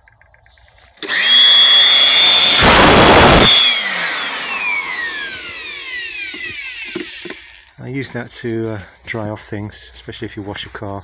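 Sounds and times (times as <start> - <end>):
electric blower whining: 0.9 - 7.8.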